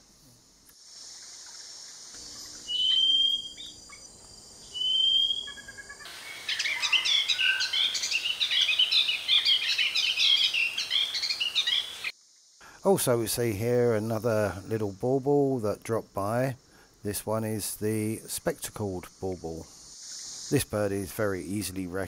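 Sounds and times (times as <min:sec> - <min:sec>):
rapid high bird chirps: 0:02.2 - 0:12.1
rising whistled bird notes: 0:02.4 - 0:04.1, 0:04.7 - 0:12.1.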